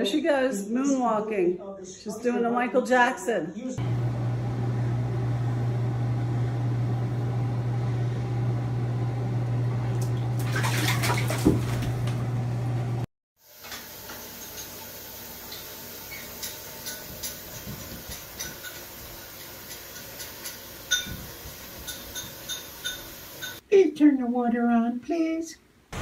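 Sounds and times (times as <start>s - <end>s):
cat knocking in bathtub: 10.6s - 12.1s.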